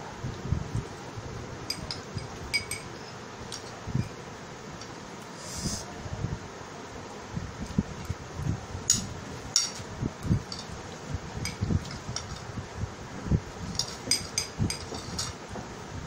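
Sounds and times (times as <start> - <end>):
steady hiss: 0.0 - 16.0
metal spoons clinking on plates: 1.7 - 4.1, 13.7 - 15.4.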